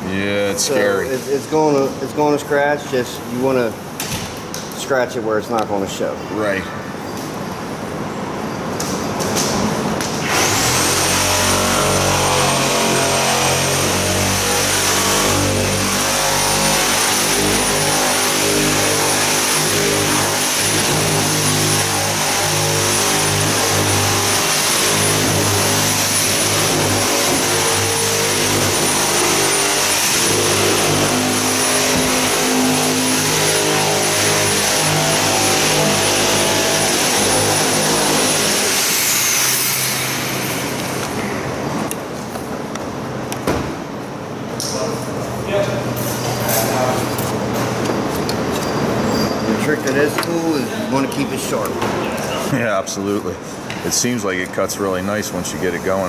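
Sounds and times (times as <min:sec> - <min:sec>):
motor-driven tool whining: 0:10.2 - 0:41.3.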